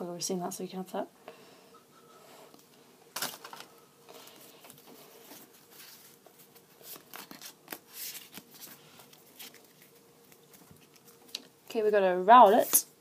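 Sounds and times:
trading cards rustling: 3.2s - 11.4s.

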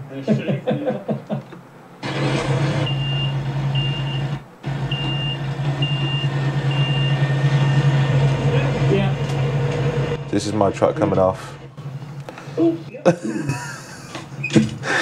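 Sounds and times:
diesel engine running: 2.0s - 12.6s
reversing alarm beeping: 2.3s - 8.3s.

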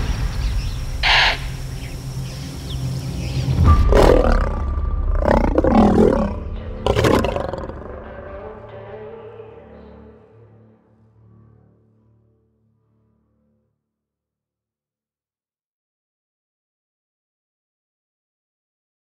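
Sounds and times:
background music: 0.1s - 13.6s
lions growling and snarling: 3.9s - 8.0s.

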